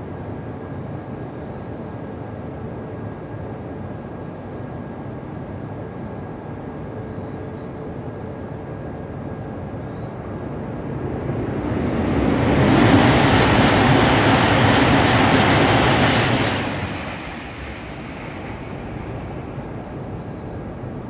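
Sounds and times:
high-speed train passing: 9.6 - 21.0.

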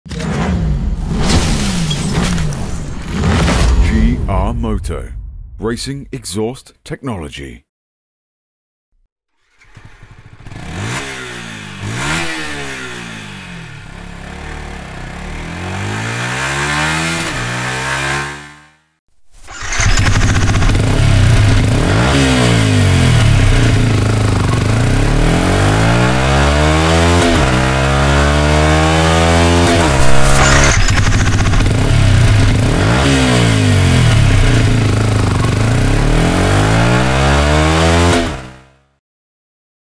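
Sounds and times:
motorcycle engine revving: 9.4 - 39.0.

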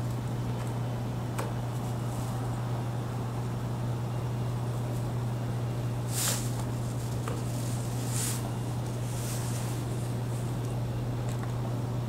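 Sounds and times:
steady low hum: 0.0 - 12.0
hissy rustles: 6.0 - 10.7.

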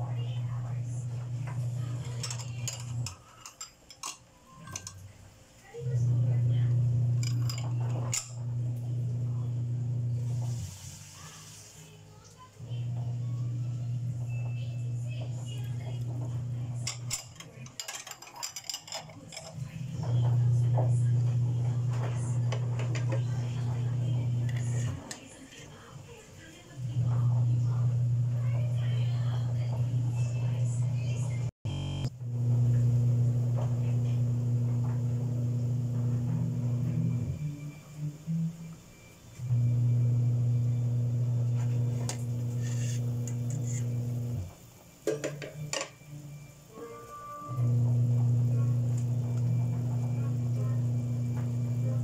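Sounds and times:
cookware clinking: 1.5 - 5.2, 7.1 - 8.6, 15.2 - 20.4, 21.9 - 25.8, 41.6 - 44.2, 45.0 - 46.1.

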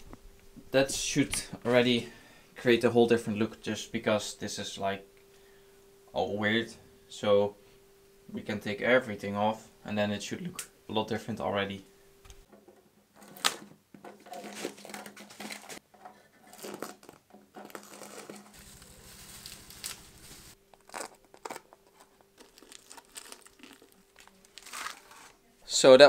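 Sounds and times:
tape ripping: 13.2 - 13.7, 16.5 - 25.4
masking foil crinkling and tearing: 14.2 - 15.8, 16.5 - 25.5.

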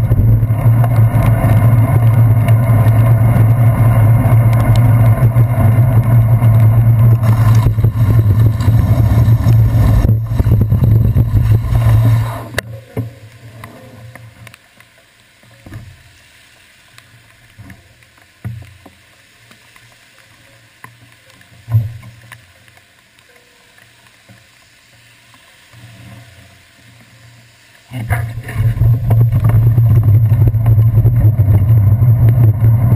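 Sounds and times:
muffled wind and road rumble: 0.0 - 14.6, 27.9 - 32.9.

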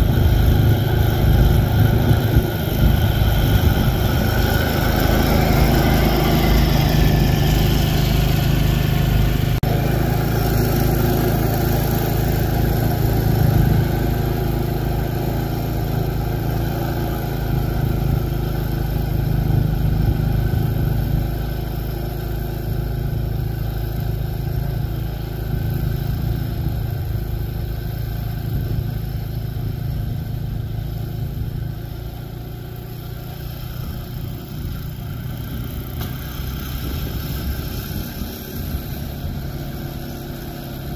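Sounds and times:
snowblower engine running: 0.0 - 40.9
auger throwing wet snow: 0.1 - 15.9.

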